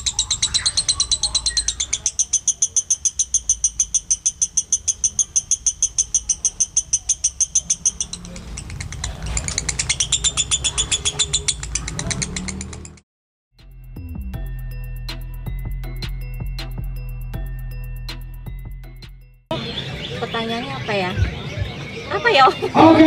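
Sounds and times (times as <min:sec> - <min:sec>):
lovebird chattering trill: 0:00.0 - 0:13.0.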